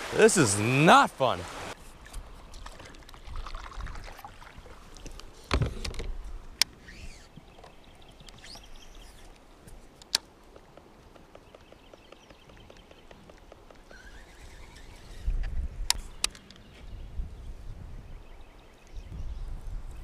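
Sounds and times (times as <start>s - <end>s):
river flowing: 0.0s - 1.8s
faint bird calls: 11.3s - 15.3s.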